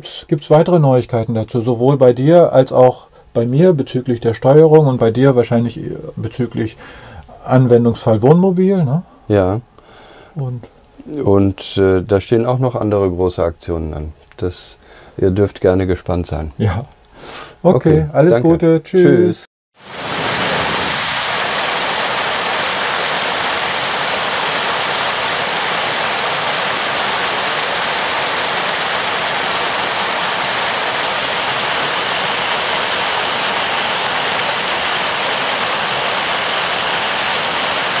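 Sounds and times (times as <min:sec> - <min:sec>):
stream rushing over rocks: 0:19.8 - 0:38.0.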